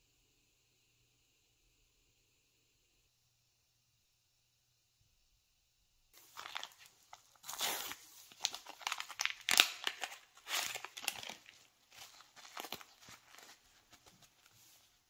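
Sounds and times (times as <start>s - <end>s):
tea bag sachet crinkling and tearing: 6.2s - 14.4s.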